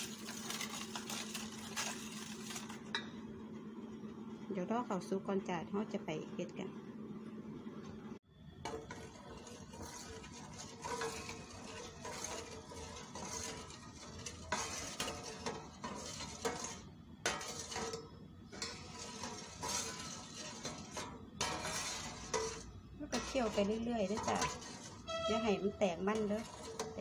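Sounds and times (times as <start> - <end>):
metal spoon scraping a metal pot: 0.0 - 2.8, 8.6 - 27.0.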